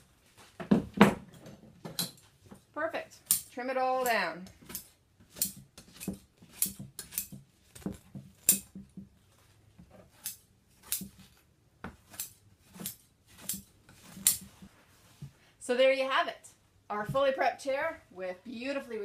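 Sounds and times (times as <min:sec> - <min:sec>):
scissors snipping through batting: 0:03.3 - 0:08.7.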